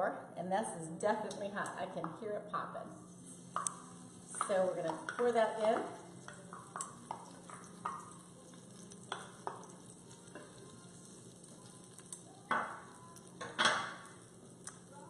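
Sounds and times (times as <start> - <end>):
oil sizzling and popping: 3.1 - 15.0
scraping into a pot: 3.1 - 15.0
spoon tapping pans: 3.5 - 15.0.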